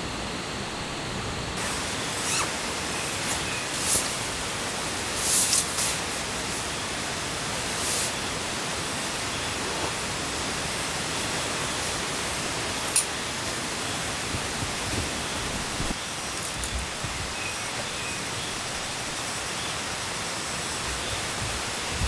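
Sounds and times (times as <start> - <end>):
steady hiss: 0.0 - 22.0
nylon fabric rustling: 1.6 - 4.2.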